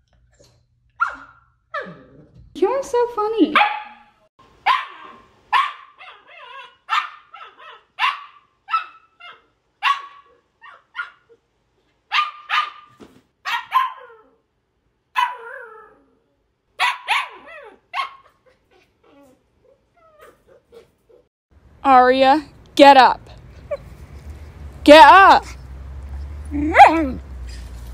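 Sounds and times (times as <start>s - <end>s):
puppy barking high-pitched: 1.0s - 1.9s, 3.6s - 11.4s, 12.1s - 14.4s, 15.1s - 15.9s, 16.8s - 18.4s, 26.6s - 27.2s.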